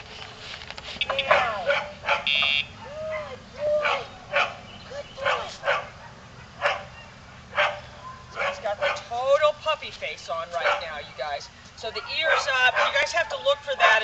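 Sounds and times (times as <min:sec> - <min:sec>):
dog barking and yelping: 0:01.1 - 0:09.1, 0:10.5 - 0:11.1, 0:11.9 - 0:14.0.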